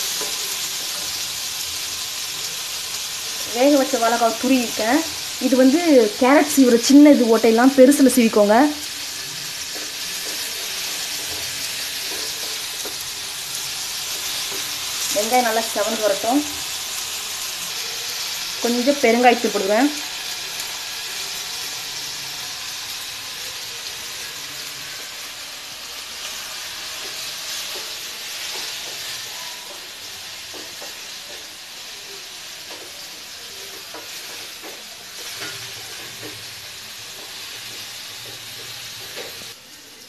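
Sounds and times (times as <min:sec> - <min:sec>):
onions sizzling in hot oil: 0:00.0 - 0:40.0
spatula tapping pan: 0:26.9 - 0:31.6, 0:33.6 - 0:36.5.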